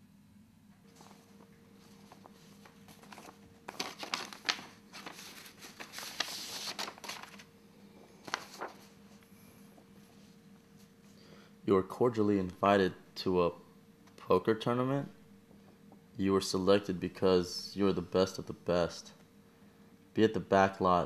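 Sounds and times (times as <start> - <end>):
paper rustling and crinkling: 0.9 - 9.2.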